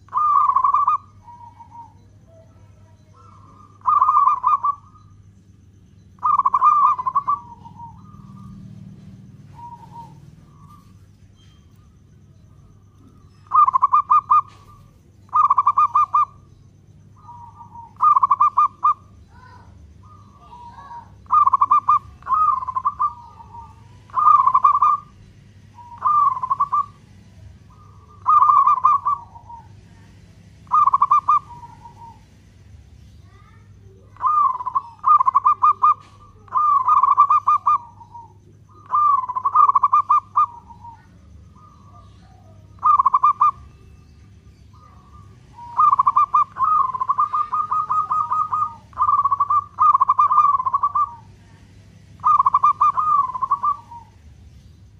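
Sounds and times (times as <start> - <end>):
dove cooing: 0.0 - 54.9.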